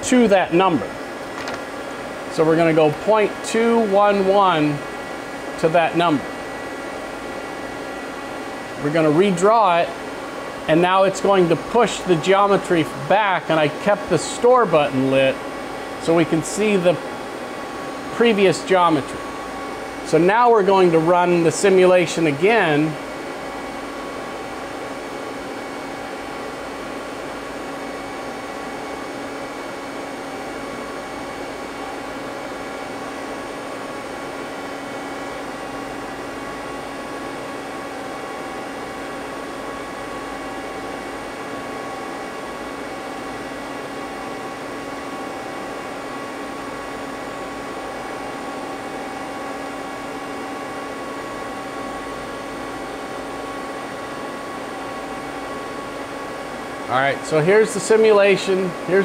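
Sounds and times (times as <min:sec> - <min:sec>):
lathe mechanical hum: 0:00.0 - 0:59.0.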